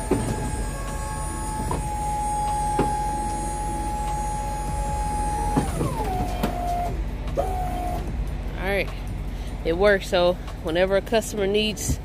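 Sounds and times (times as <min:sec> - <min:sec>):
metal clunks: 0:00.0 - 0:00.7, 0:01.5 - 0:03.4
hydraulic pump motor whining: 0:00.0 - 0:08.2.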